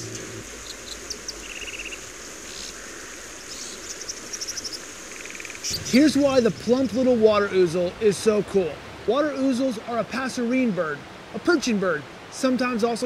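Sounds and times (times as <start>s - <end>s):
insects or frogs chirping: 0.0s - 7.9s
creek water hissing: 0.0s - 13.0s.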